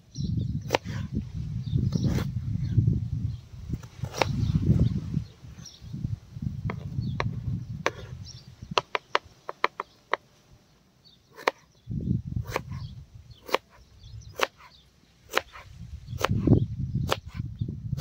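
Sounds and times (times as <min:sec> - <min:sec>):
knife chopping on plastic board: 0:11.4 - 0:11.6.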